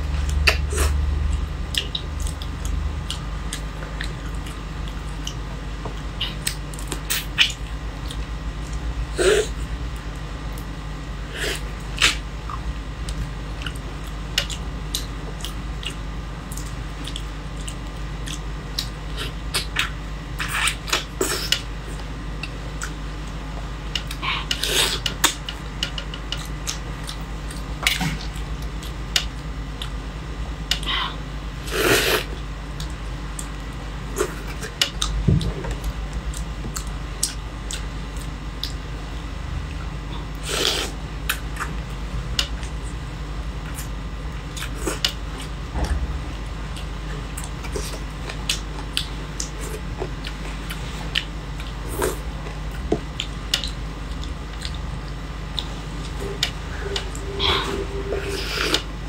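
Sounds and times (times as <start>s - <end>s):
steady low hum: 0.0s - 59.0s
chewing and smacking: 0.2s - 8.8s, 11.5s - 30.0s, 32.4s - 38.9s, 43.6s - 46.0s, 46.7s - 57.3s
sucking noises: 55.7s - 59.0s.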